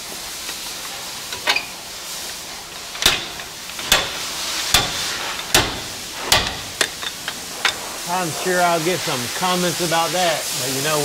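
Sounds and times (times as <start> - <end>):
steady hiss: 0.0 - 11.0
steel bar knocking on bracket: 3.0 - 7.2.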